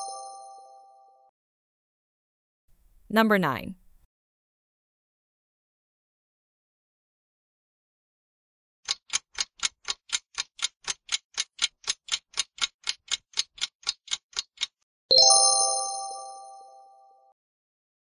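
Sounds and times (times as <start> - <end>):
clock ticking countdown: 8.9 - 14.8.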